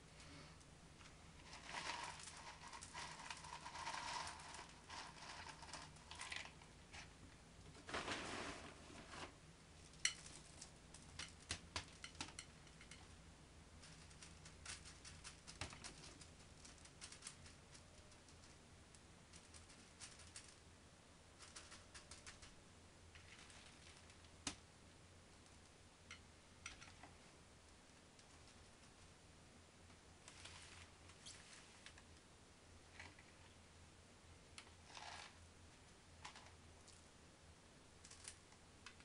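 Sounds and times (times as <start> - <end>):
clay pebbles rattling against glass: 1.3 - 7.2, 13.8 - 18.6, 19.2 - 20.6, 21.3 - 24.3.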